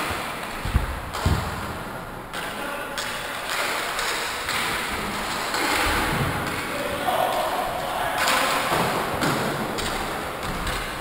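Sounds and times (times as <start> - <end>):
hockey sticks and puck knocking: 0.0 - 7.5, 8.2 - 11.0
players calling out: 6.6 - 9.2.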